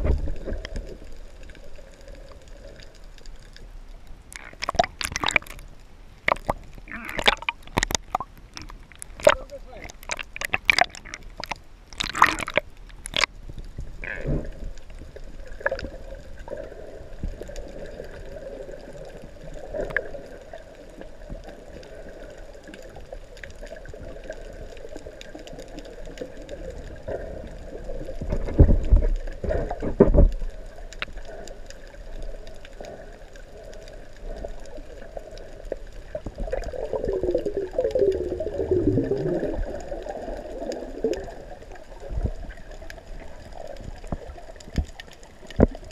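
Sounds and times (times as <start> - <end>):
muffled underwater sloshing and gurgling: 0.0 - 45.9
heavy thumps of water: 4.3 - 5.6, 6.2 - 13.3
sharp water splashes: 4.3 - 5.6, 6.2 - 13.3.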